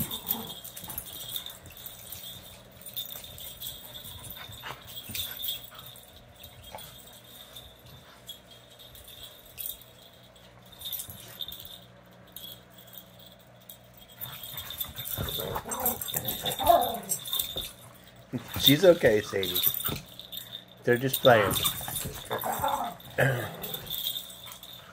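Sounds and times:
jingling and scuffling: 0:00.0 - 0:24.9
dogs vocalizing in wavering calls: 0:14.5 - 0:17.6, 0:21.8 - 0:24.9.

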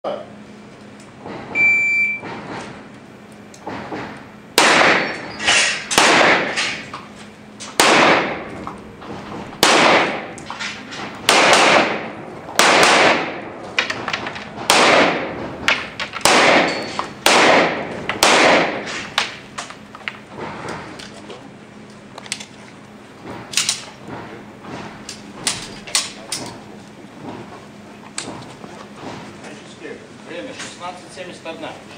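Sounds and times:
pistol shots echoing indoors: 0:04.6 - 0:05.2, 0:05.9 - 0:06.6, 0:07.8 - 0:08.5, 0:09.6 - 0:10.3, 0:11.3 - 0:13.5, 0:14.7 - 0:15.4, 0:16.2 - 0:18.9.

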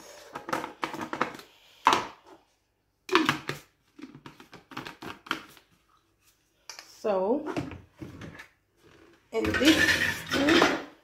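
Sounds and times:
plastic cup and lid clattering: 0:03.1 - 0:05.6.

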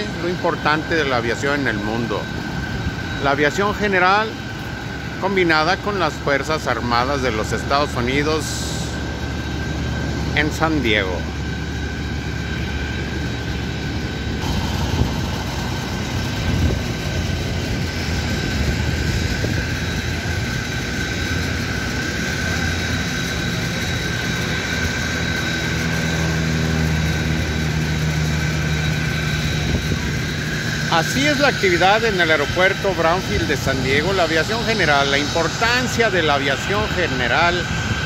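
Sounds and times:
engine drone with high whine: 0:00.0 - 0:38.0
propeller plane flying overhead: 0:00.0 - 0:38.0.

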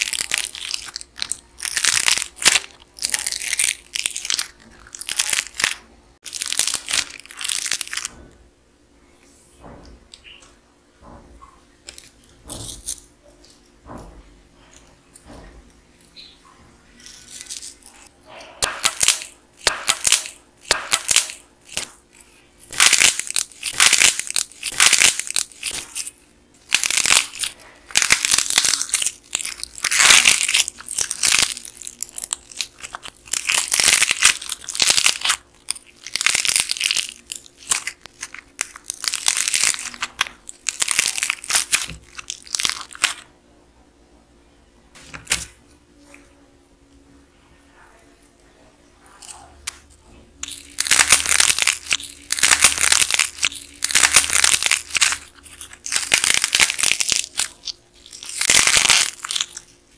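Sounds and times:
clay toy cracking and tearing: 0:00.0 - 0:08.2, 0:11.8 - 0:13.8, 0:17.0 - 0:43.3, 0:45.1 - 0:45.6, 0:49.2 - 0:59.9.

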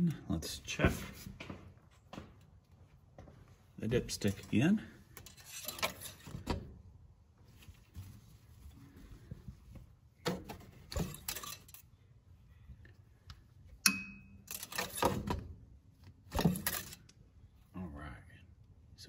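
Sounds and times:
clicks and rattles of engine parts: 0:05.1 - 0:06.7, 0:10.3 - 0:11.9, 0:14.4 - 0:15.5, 0:16.2 - 0:17.2.

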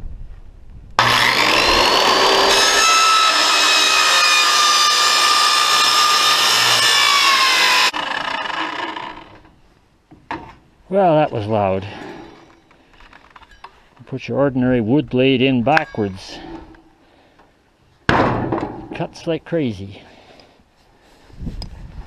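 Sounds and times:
circular saw cutting metal: 0:01.0 - 0:09.4.

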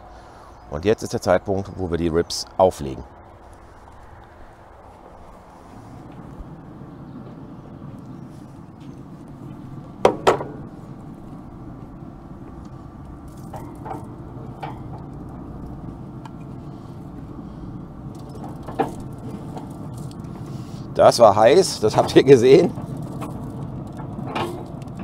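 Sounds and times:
low hum: 0:00.0 - 0:25.0
metal knocks on grill grate: 0:10.0 - 0:10.7.

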